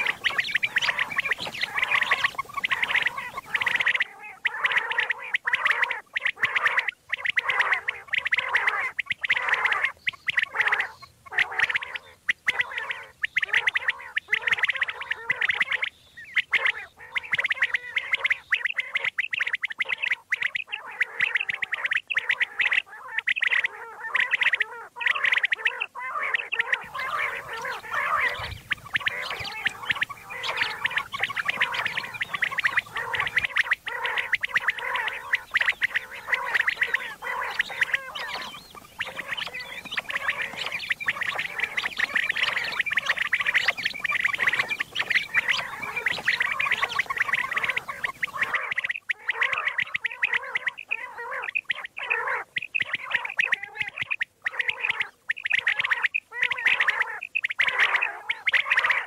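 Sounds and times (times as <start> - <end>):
background hiss: 0.0 - 4.0, 26.8 - 48.6
quails calling: 0.0 - 59.0.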